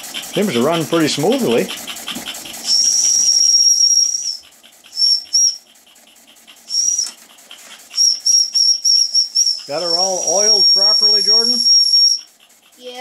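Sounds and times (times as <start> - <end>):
steam engine chuffing: 0.0 - 13.0
steam whistle toots: 2.7 - 4.4, 8.0 - 12.2.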